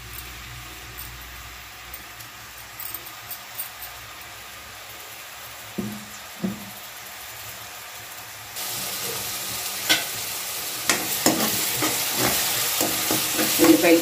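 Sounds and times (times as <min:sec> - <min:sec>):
onions sizzling in hot oil: 0:00.0 - 0:14.0
spatula scraping and knocking pan: 0:09.8 - 0:10.1, 0:10.8 - 0:14.0.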